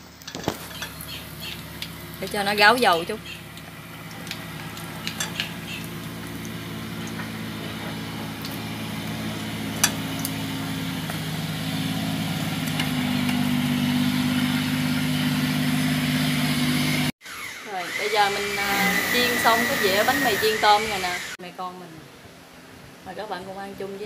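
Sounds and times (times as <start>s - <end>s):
hot oil sizzling: 0.0s - 17.1s
low motor hum: 0.0s - 17.1s.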